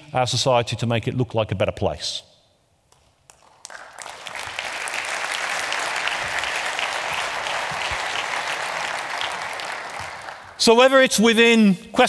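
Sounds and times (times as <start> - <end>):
audience applauding: 3.3 - 10.7.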